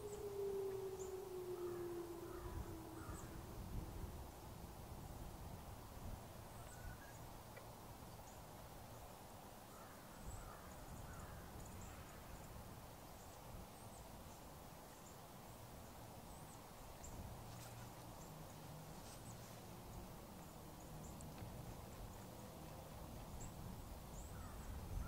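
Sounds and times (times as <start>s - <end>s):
faint bird chirps: 0.0s - 3.9s, 6.5s - 7.2s
siren: 0.0s - 4.6s.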